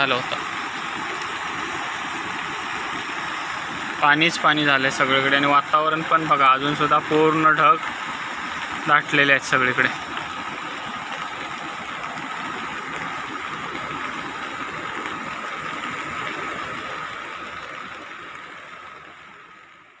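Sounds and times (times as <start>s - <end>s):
heavy rain: 0.0s - 20.0s
river rushing: 0.0s - 20.0s.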